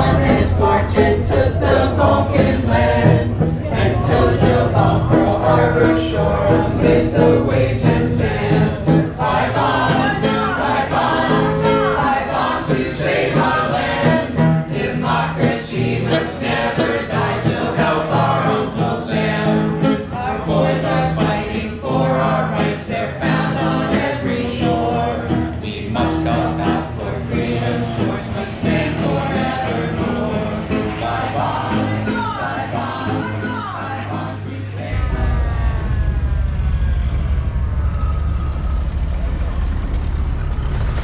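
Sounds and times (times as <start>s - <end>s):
low held notes: 0.0s - 13.2s, 34.6s - 41.0s
group singing in harmony: 0.0s - 41.0s.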